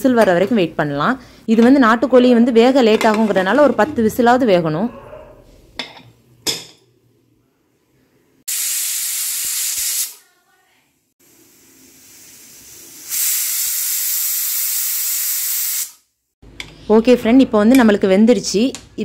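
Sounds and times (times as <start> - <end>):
pressure cooker whistling: 12.3 - 16.0.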